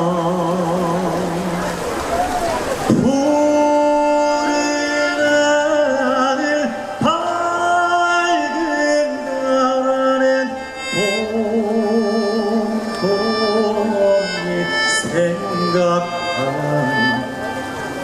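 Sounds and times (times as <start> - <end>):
man singing slow song: 0.0 - 1.8, 2.9 - 17.8
traditional orchestra playing: 0.5 - 18.0.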